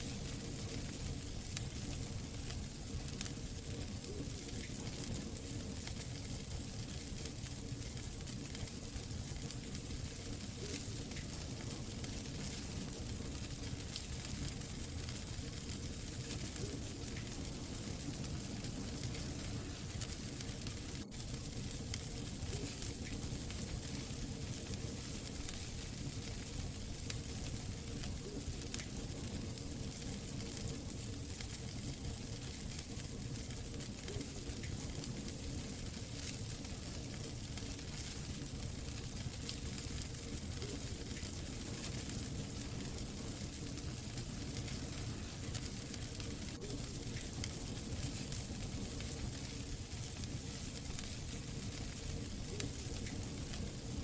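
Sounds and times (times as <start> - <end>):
fire hissing and crackling: 0.0 - 54.0.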